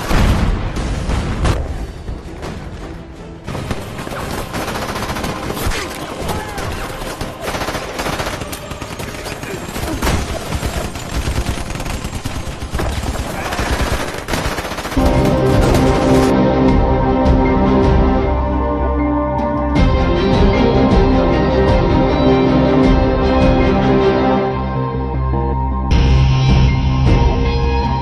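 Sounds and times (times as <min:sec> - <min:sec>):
loud film music: 0:00.0 - 0:28.0
machine-gun and rifle fire: 0:03.5 - 0:16.3.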